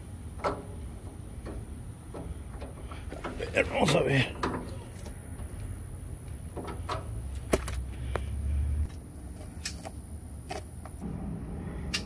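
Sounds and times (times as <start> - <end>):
low rumble: 11.0 - 12.0.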